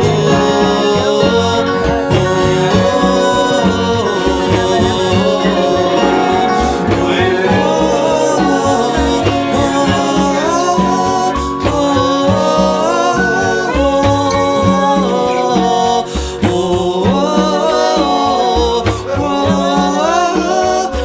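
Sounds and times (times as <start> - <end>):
bass: 0.0 - 21.0
hand drums: 0.0 - 21.0
plucked guitar strings: 0.0 - 21.0
wordless sung vocals: 0.0 - 21.0.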